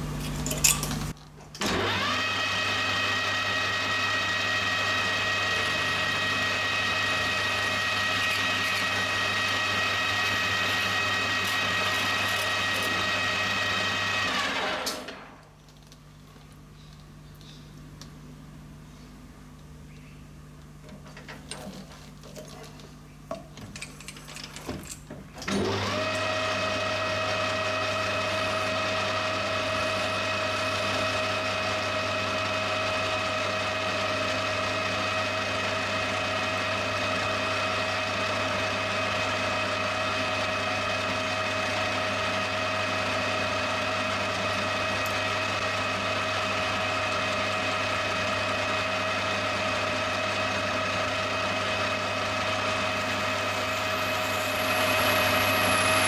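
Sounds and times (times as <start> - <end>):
metal lathe running: 1.7 - 15.0, 25.6 - 56.0.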